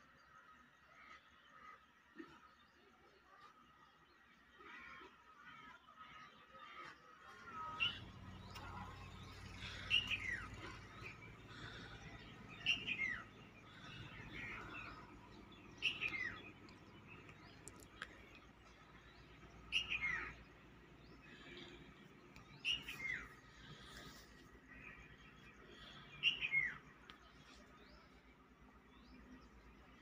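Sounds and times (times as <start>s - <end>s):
faint bird chirps: 7.4s - 30.0s.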